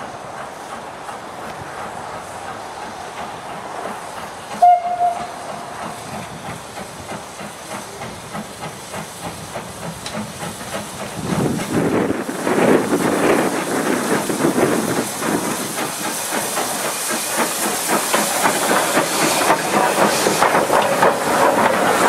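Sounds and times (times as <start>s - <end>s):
steam exhaust beats: 0.0s - 22.0s
steam locomotive whistle: 4.5s - 5.6s.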